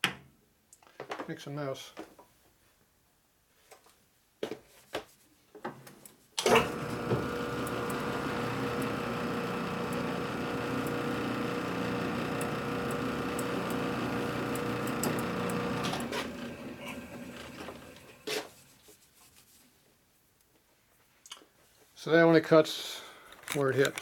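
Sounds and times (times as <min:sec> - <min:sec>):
metal lathe running with gear whine: 0:06.5 - 0:18.1.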